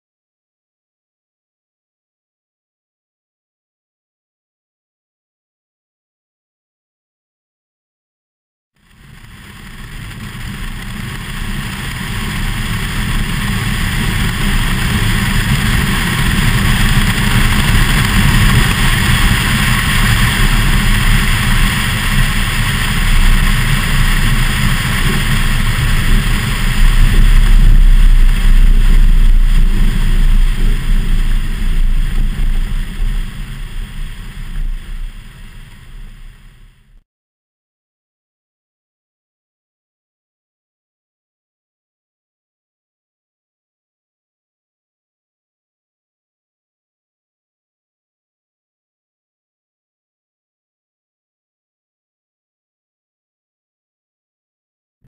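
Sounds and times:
low rumble: 8.8s - 37.0s
wind rushing over camera: 8.8s - 37.0s.

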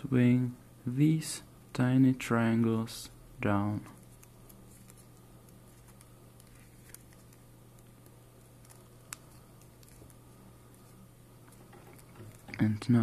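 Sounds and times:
paper folding crinkles: 3.9s - 13.0s.

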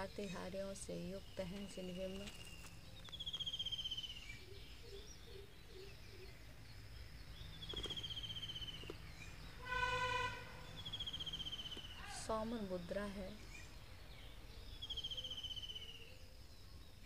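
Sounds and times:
short pitched call: 9.6s - 10.6s
high pulsed trilling call: 9.6s - 11.8s.

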